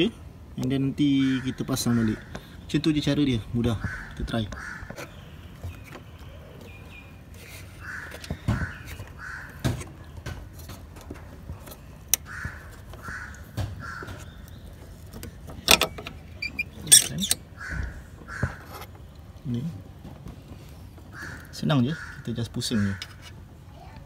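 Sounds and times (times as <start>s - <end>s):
crow cawing: 1.2s - 2.5s, 3.7s - 5.1s, 7.8s - 9.8s, 12.2s - 14.4s, 17.6s - 18.8s, 21.1s - 23.1s.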